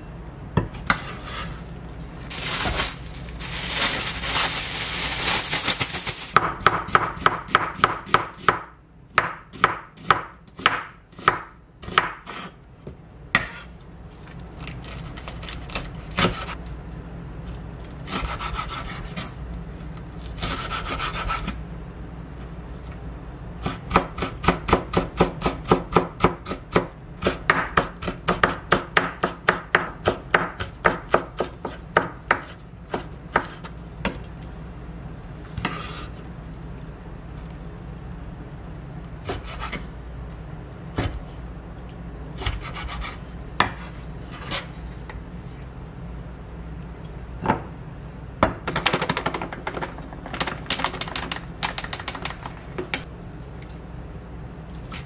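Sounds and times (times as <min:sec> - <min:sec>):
plastic cling wrap crinkling: 0:01.9 - 0:06.4
knife chopping on wooden board: 0:06.4 - 0:12.5, 0:23.6 - 0:34.2.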